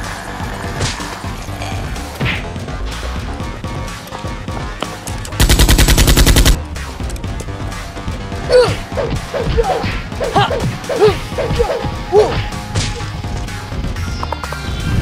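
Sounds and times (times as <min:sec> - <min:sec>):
background music: 0:00.0 - 0:15.0
automatic gunfire: 0:05.4 - 0:06.6.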